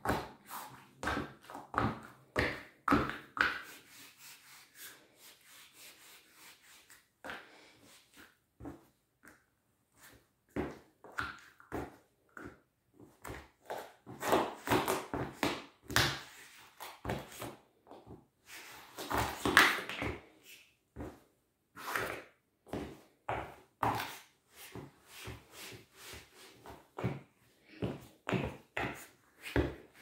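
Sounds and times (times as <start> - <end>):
sneakers stamping on tile floor: 26.6 - 30.0.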